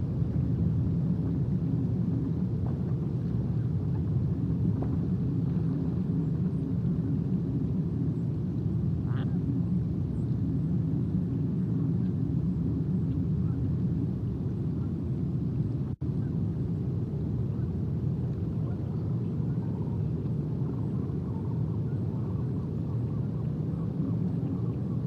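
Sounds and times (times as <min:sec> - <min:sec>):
low outdoor rumble: 0:00.0 - 0:25.0.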